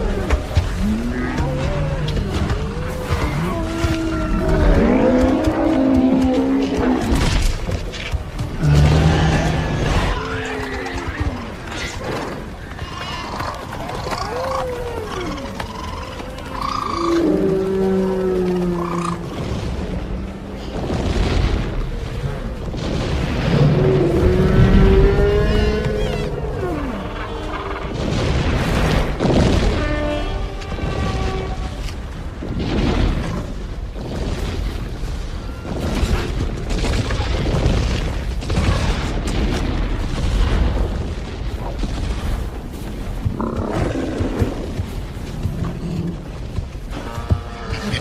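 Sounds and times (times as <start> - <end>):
animal roars: 0.0 - 7.6, 8.5 - 19.5.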